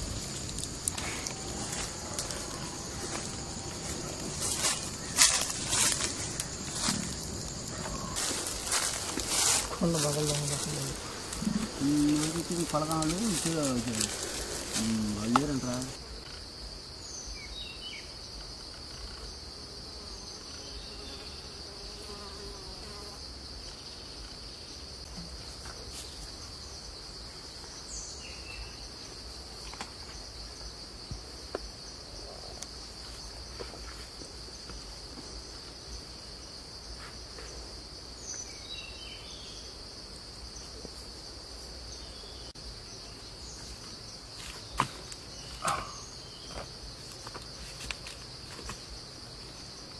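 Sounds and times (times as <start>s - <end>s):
high-pitched insect drone: 0.0s - 23.3s.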